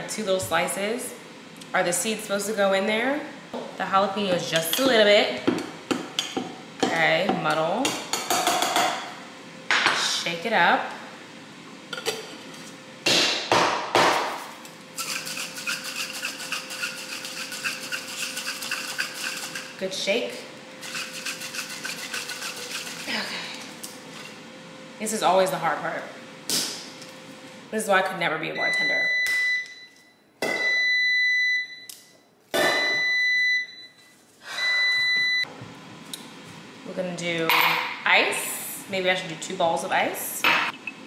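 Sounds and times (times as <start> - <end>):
electronic alarm beeping: 28.6 - 31.9, 32.7 - 34.0, 34.6 - 35.5.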